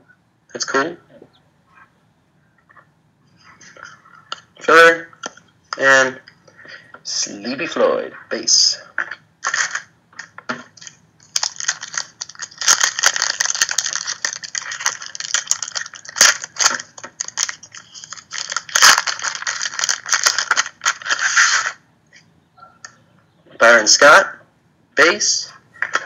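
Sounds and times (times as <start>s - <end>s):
foil wrapper crinkling and tearing: 9.4s - 21.8s.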